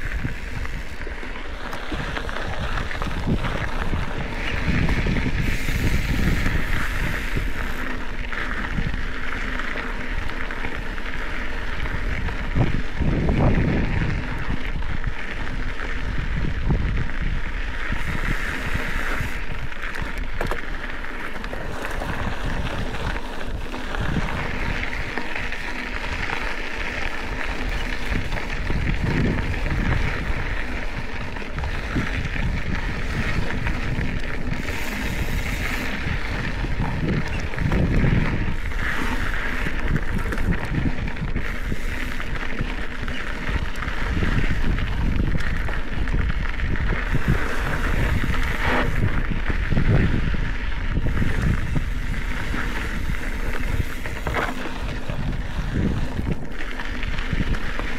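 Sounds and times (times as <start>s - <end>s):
wind buffeting microphone: 0.0s - 9.4s, 10.0s - 57.9s
bike knocking and rattling: 0.0s - 57.9s
tyres hissing on dirt: 0.3s - 8.0s, 18.0s - 19.8s, 34.4s - 37.5s, 38.4s - 40.5s, 41.4s - 43.0s, 47.0s - 49.2s.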